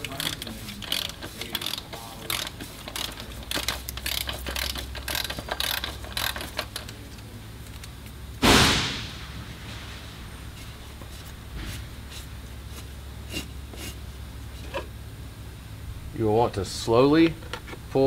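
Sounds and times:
ratchet wrench clicking: 0.0s - 7.0s
sudden loud burst: 8.4s - 10.1s.

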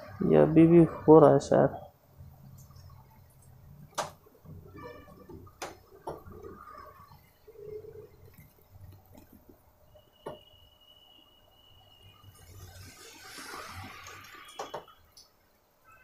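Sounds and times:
ink gurgling: 2.2s - 9.6s, 12.2s - 15.0s.

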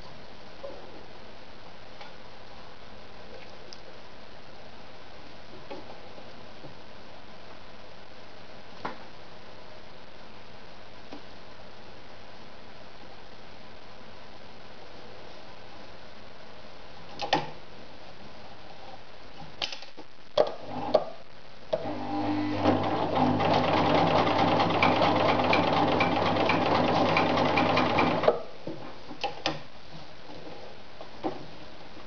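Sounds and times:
sewing machine stitching: 21.8s - 28.4s.

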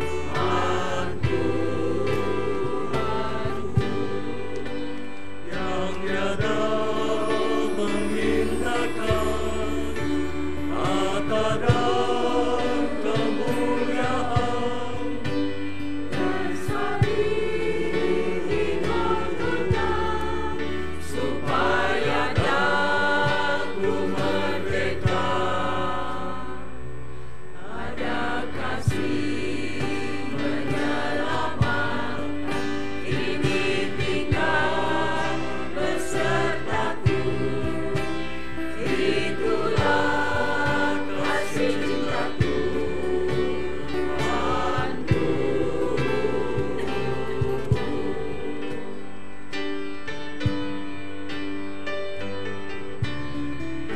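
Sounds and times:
choir singing a hymn: 0.0s - 51.4s.

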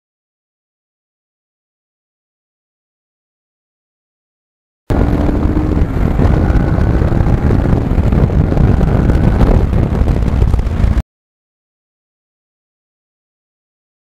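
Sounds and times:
motorcycle engine running: 4.9s - 11.0s
wind noise on microphone: 4.9s - 11.0s.

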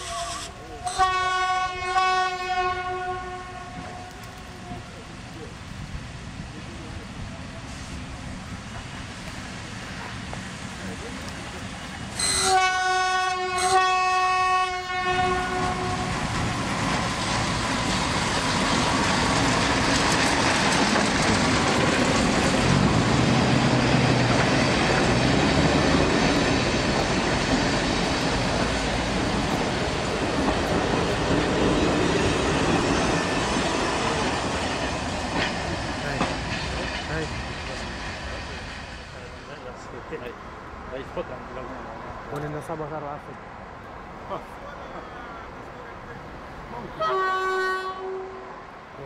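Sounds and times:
train horn: 0.0s - 4.8s, 12.2s - 16.5s, 47.0s - 48.6s
train running on track: 0.0s - 49.0s.

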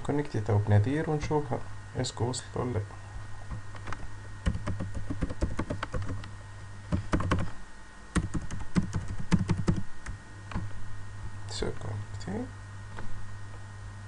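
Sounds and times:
typing on computer keyboard: 4.4s - 6.2s, 7.0s - 7.5s, 8.2s - 9.8s.

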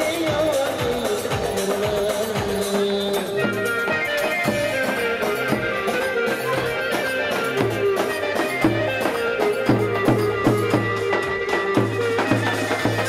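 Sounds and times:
steady drum beat: 0.0s - 13.0s
plucked-string melody: 3.4s - 13.0s.

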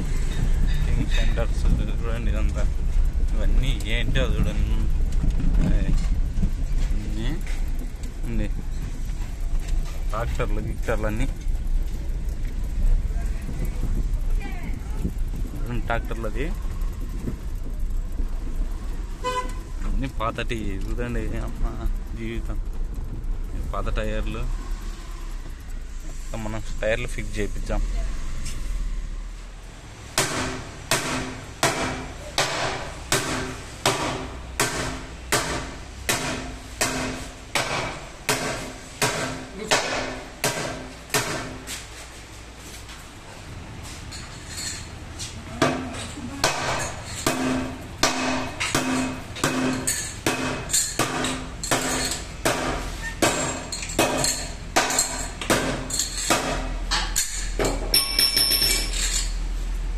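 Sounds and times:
hammer striking metal rim: 30.2s - 41.7s, 45.6s - 58.9s.

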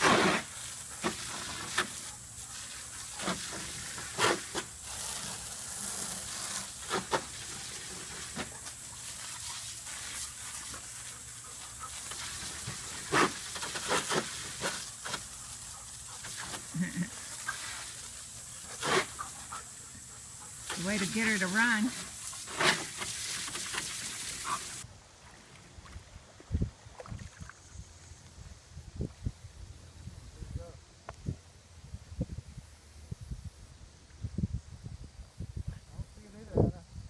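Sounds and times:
garden hose spray hissing: 0.0s - 24.9s
dog panting: 10.8s - 12.3s, 15.4s - 16.7s, 18.6s - 20.8s.

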